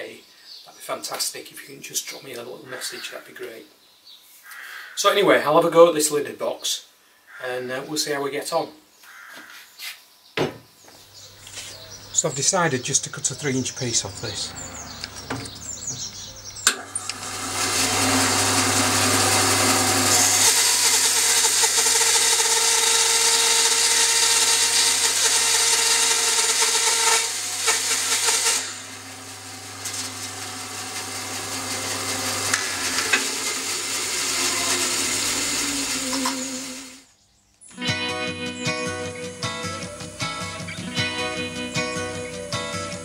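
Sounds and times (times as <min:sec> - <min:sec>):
bandsaw motor humming: 0:11.2 - 0:37.1
bandsaw blade cutting wood: 0:13.2 - 0:37.1.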